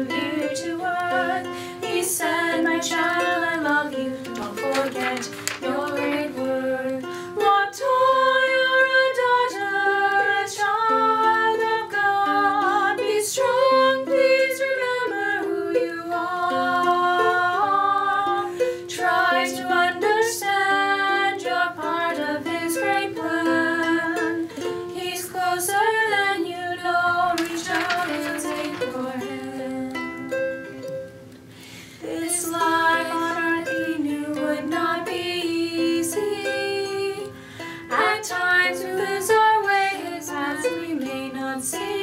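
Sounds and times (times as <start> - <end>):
women singing: 0.0 - 30.9, 32.0 - 42.0
ukulele: 0.0 - 42.0.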